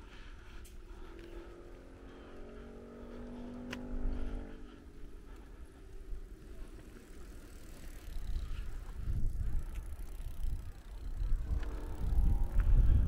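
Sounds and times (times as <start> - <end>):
wind buffeting microphone: 8.1 - 13.0.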